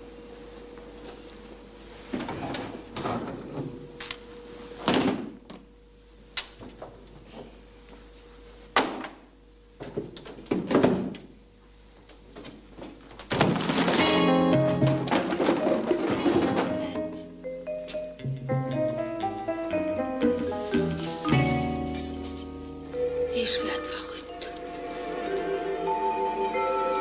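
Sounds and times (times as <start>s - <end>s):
music: 13.8s - 27.0s
cases knocking and thudding: 14.7s - 16.9s.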